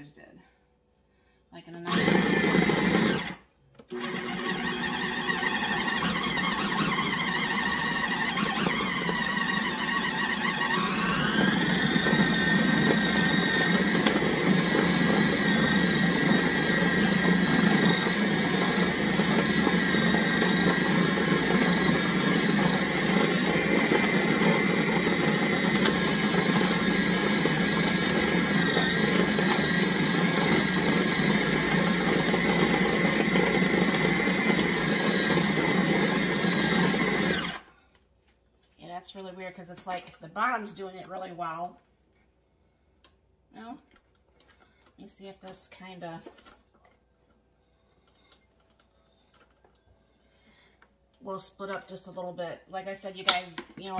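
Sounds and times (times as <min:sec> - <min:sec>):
food processor motor whining: 0:01.7 - 0:37.8.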